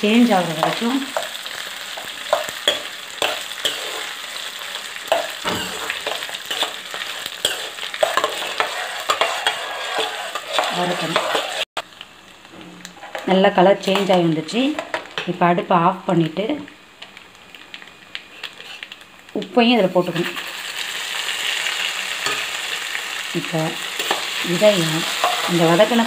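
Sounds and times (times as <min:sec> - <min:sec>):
chillies sizzling in oil: 0:00.0 - 0:26.0
steel ladle scraping pan: 0:05.1 - 0:11.7.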